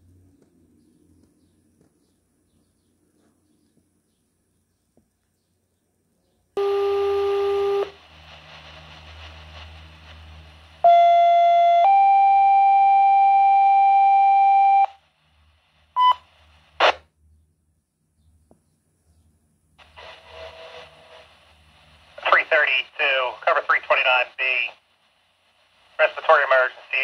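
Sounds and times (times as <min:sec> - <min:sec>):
faint radio hiss: 0:06.5 - 0:11.1, 0:14.8 - 0:17.1, 0:19.7 - 0:27.0
burst of static: 0:06.6 - 0:11.1, 0:15.0 - 0:17.0, 0:19.8 - 0:27.0
low buzzy radio tone: 0:06.6 - 0:17.0, 0:19.8 - 0:27.0.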